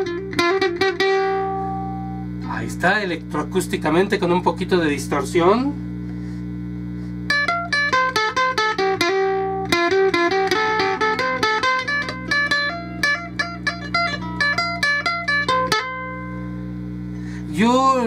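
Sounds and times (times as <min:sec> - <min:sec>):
mains hum: 0:00.0 - 0:18.0
amplified ukulele melody: 0:07.3 - 0:16.4.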